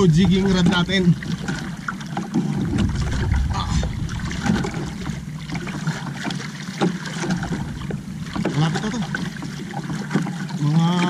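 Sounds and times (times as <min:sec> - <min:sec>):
water lapping against hull: 0:00.0 - 0:11.0
brief low rumble: 0:02.7 - 0:05.8.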